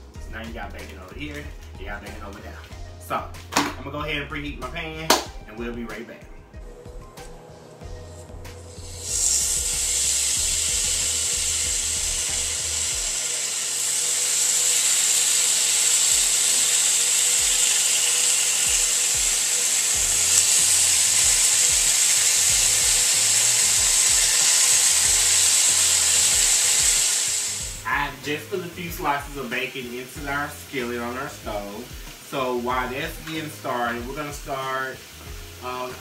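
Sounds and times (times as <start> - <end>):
bacon sizzling in a skillet: 7.8 - 36.0.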